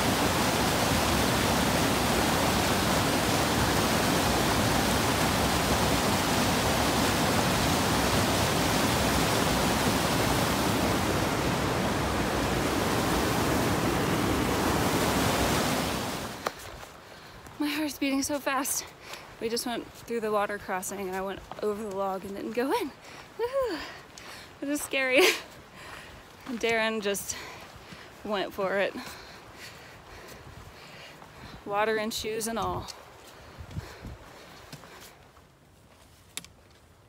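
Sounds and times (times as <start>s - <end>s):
white water rushing: 0.0s - 16.5s.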